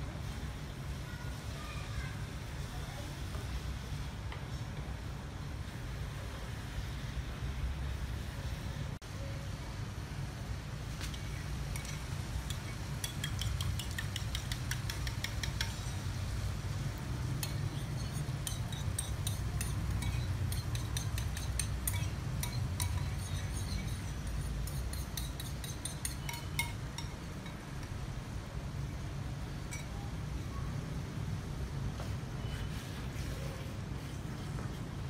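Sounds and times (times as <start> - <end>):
spoon clinking against bowl: 11.7 - 16.0, 17.4 - 27.6, 29.7 - 30.0.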